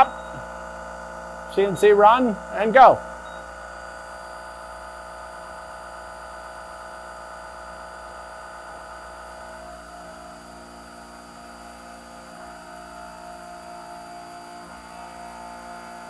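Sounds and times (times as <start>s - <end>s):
milling machine hum and whir: 0.0s - 16.0s
coolant mist hiss: 3.9s - 16.0s.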